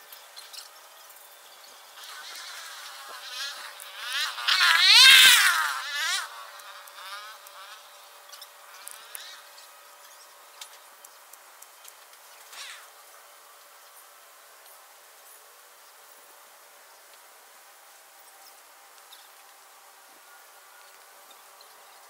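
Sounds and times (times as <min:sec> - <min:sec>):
flying insect buzzing: 0:01.8 - 0:10.8, 0:12.4 - 0:13.0.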